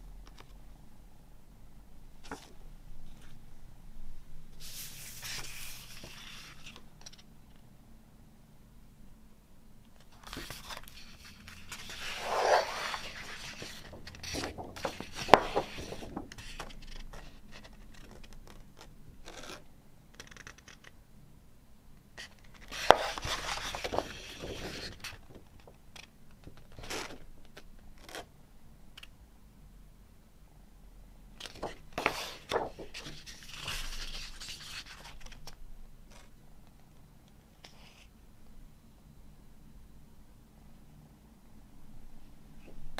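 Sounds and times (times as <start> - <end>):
paper rustling and sliding: 4.6 - 7.2, 10.1 - 18.4, 22.2 - 25.7, 31.4 - 35.4.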